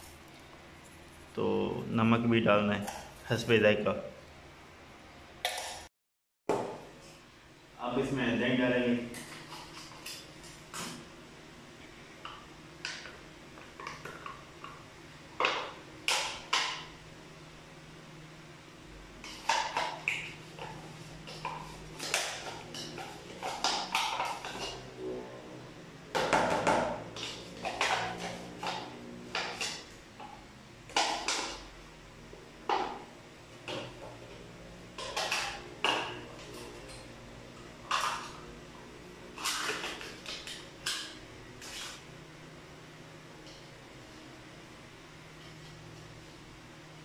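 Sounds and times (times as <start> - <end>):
metal spoon scraping plastic tub: 19.2 - 25.0, 39.3 - 41.0.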